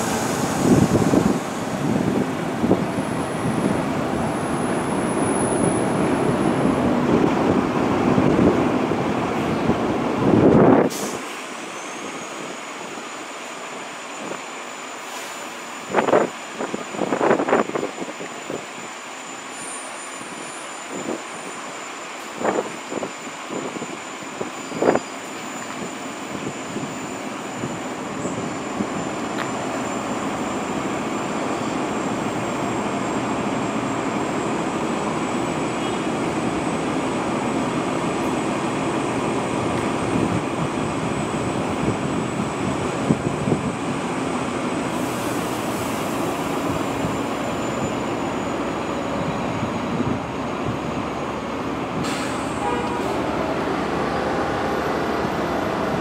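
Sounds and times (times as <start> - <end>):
subway train wheels rumbling: 0.0 - 56.0
brief hiss: 52.0 - 53.2.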